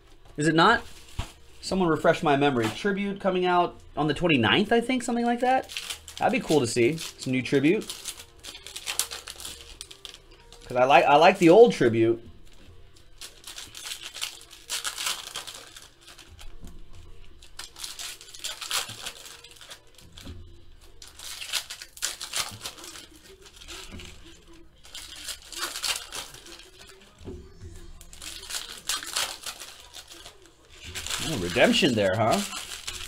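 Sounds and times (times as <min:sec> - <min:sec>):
foil wrapper crinkling and tearing: 0:04.6 - 0:11.7, 0:13.0 - 0:33.0.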